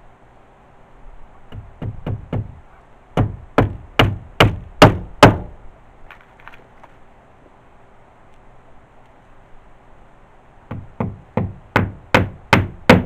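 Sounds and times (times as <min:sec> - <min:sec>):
hammer driving a nail into wood: 0:03.2 - 0:05.5, 0:10.7 - 0:13.0.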